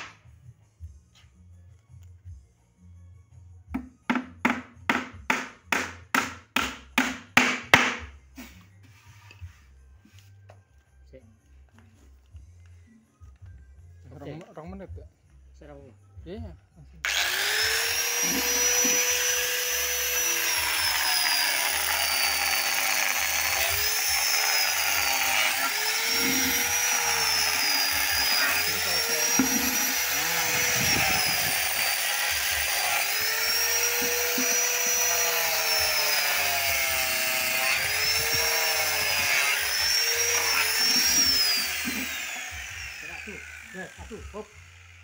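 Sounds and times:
angle grinder sanding wood: 17.1s - 45.0s.

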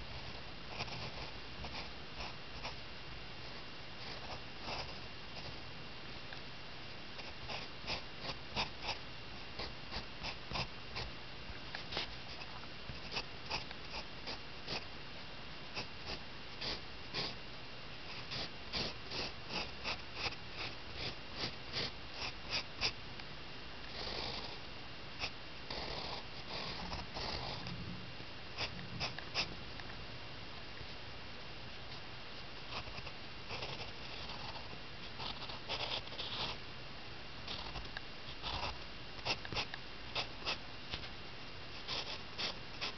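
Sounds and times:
pencil scratching on paper: 0.7s - 2.8s, 3.4s - 5.6s, 7.2s - 9.0s, 9.6s - 11.1s, 11.8s - 14.9s, 15.8s - 17.4s, 18.1s - 23.0s, 25.2s - 27.7s, 28.6s - 29.5s, 32.7s - 36.6s, 37.5s - 40.6s, 41.8s - 42.9s.

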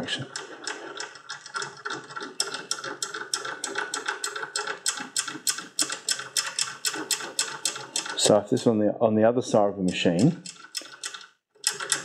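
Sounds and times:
bolt nut clicking in vise: 0.3s - 8.2s, 9.9s - 12.0s.

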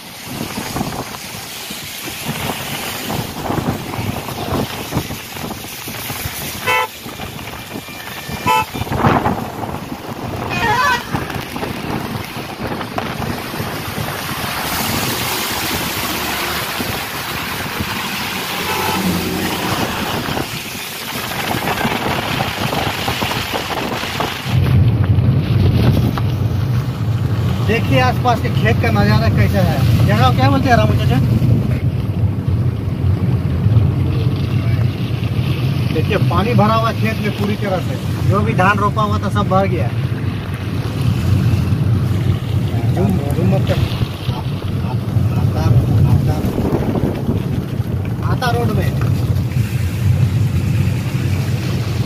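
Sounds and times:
car road and wind noise: 0.0s - 52.0s
vehicle horn toots: 6.6s - 9.2s, 18.6s - 19.4s
low rumble: 28.4s - 52.0s.

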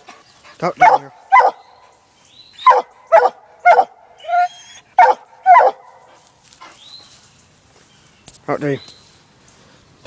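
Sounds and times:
dog barking: 0.8s - 1.6s, 2.6s - 6.1s
long drawn-out dog bark: 0.8s - 1.6s, 5.0s - 6.1s.

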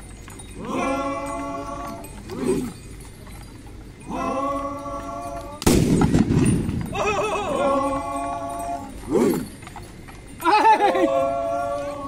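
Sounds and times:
men chanting held notes: 0.5s - 2.8s, 4.0s - 5.7s, 7.0s - 9.6s, 10.4s - 12.0s.

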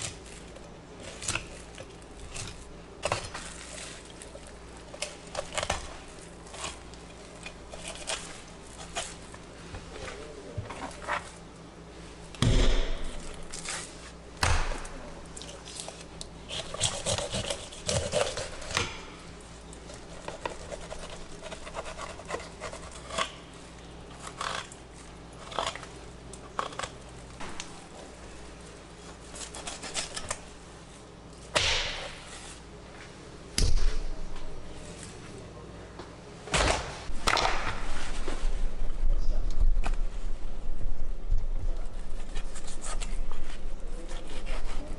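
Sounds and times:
knife scraping fish: 5.0s - 9.3s, 15.7s - 19.0s, 19.9s - 23.4s, 29.2s - 30.4s, 42.1s - 44.9s.

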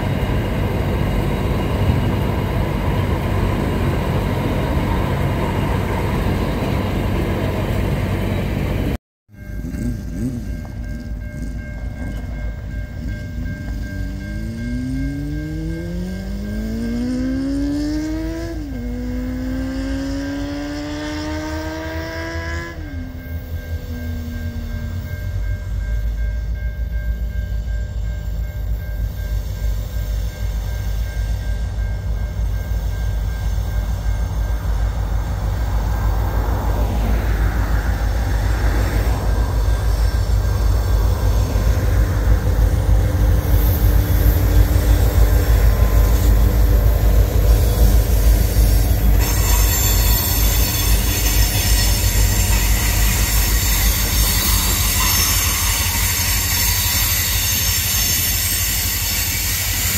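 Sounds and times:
diesel locomotives rumbling: 0.0s - 59.9s
train wheels squealing: 0.0s - 59.9s.

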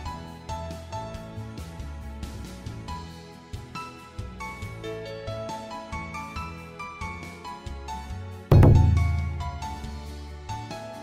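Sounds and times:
plucked melodic notes: 8.5s - 10.0s
low bass notes: 8.5s - 10.1s.

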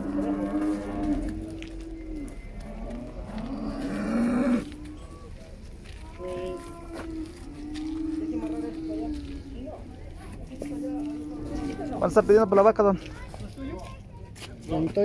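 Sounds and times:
cattle mooing: 0.0s - 5.3s, 6.2s - 9.8s, 10.5s - 12.4s.

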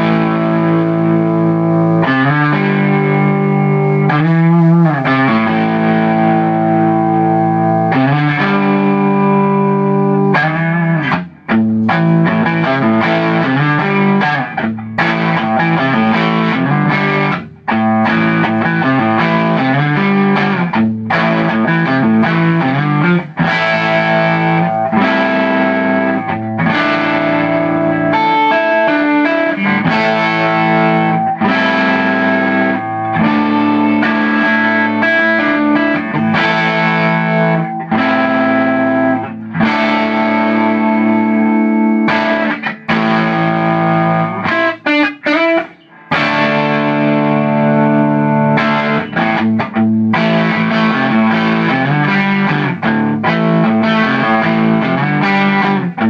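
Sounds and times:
distorted electric guitar: 0.0s - 56.0s.

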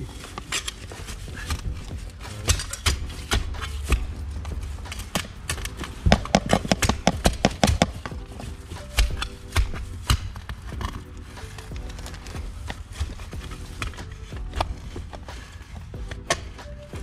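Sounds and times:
scraping mud: 0.0s - 17.0s.

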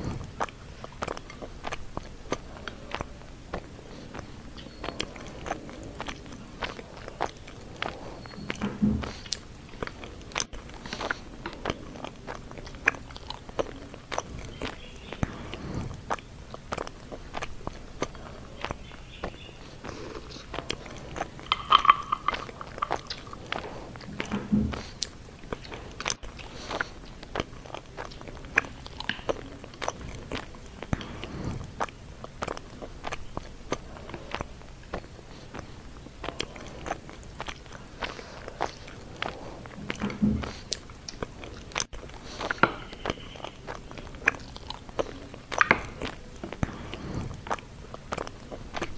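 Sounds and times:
chewing with wet mouth clicks: 0.0s - 48.9s
chopsticks and spoon tapping bowl: 21.4s - 23.3s.

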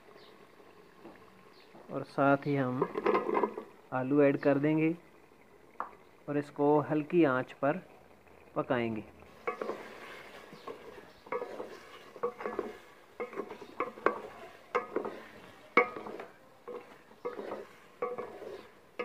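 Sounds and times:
wooden spatula scraping metal pot: 2.6s - 3.8s, 9.2s - 19.0s.

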